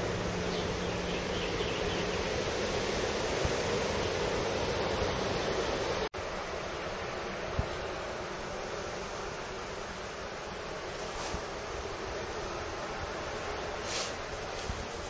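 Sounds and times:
distant sea surf: 0.0 - 8.7.

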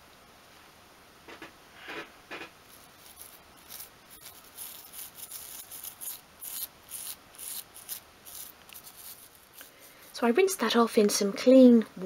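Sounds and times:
toothbrush scrubbing: 2.7 - 10.2.

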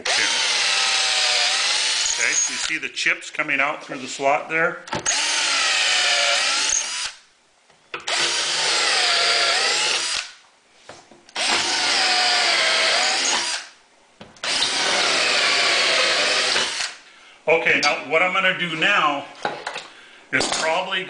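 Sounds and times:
cordless drill boring into wood: 0.0 - 2.7, 5.0 - 7.2, 8.1 - 10.4, 11.4 - 13.7, 14.4 - 17.0.

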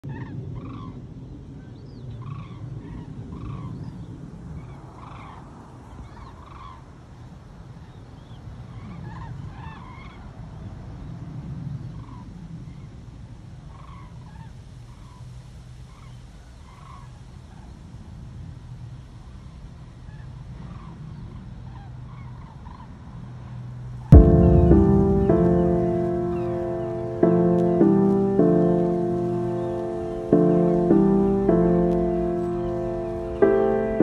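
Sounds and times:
steady low rumble: 24.1 - 34.0.

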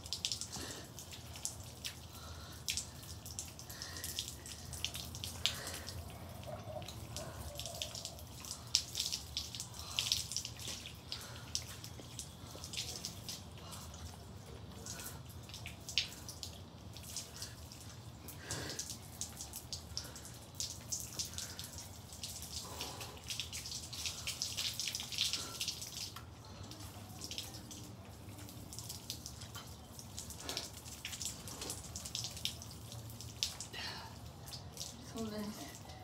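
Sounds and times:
hose water splashing on concrete: 0.0 - 36.0.

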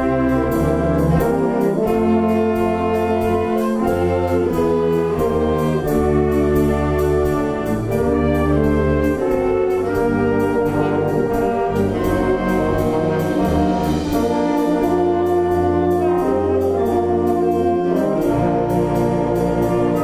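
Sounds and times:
wind band brass chords: 0.0 - 20.0
percussion beat: 9.2 - 16.4.

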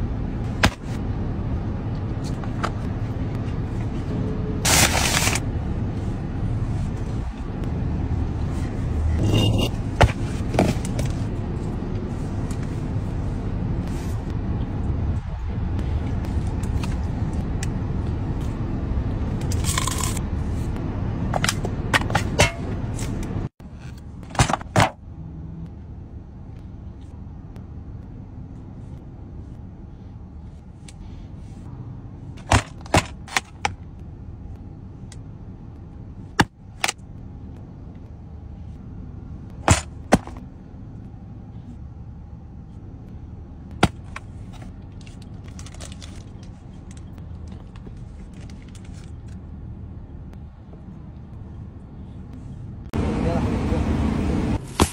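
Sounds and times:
low hum: 0.0 - 24.4.

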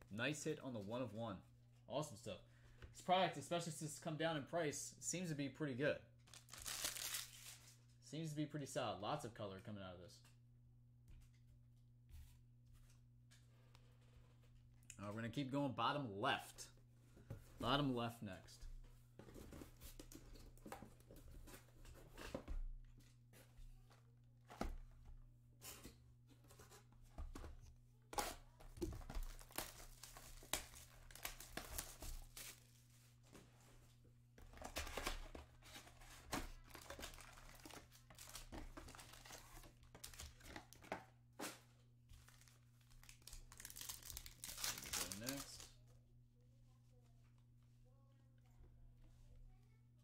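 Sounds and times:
foil packs crinkling: 6.3 - 7.8, 29.2 - 32.6, 36.6 - 40.8, 42.2 - 45.7.

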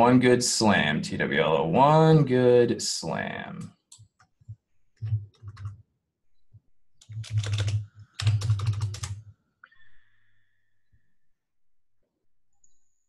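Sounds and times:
computer keyboard typing: 3.9 - 5.8, 7.0 - 9.3.

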